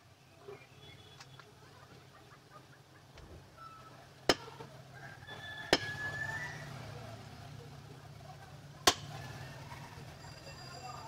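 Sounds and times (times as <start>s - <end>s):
cleaver chopping meat on wood: 4.3s - 4.6s, 5.7s - 6.0s, 8.9s - 9.1s.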